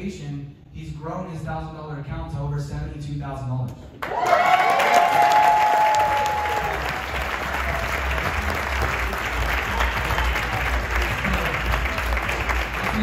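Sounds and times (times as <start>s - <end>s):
audience applauding: 4.0s - 13.0s.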